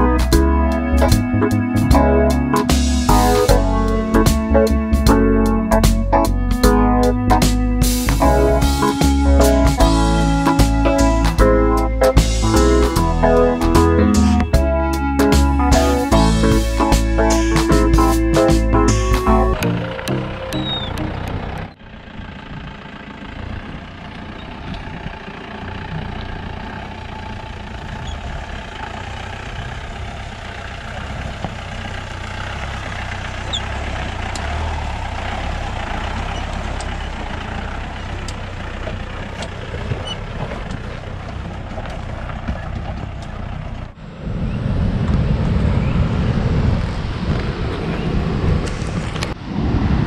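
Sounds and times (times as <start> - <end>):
low rumble: 0.0 - 50.0
vehicle engine running under load: 0.0 - 50.0
stones clicking under tyres: 27.9 - 43.9.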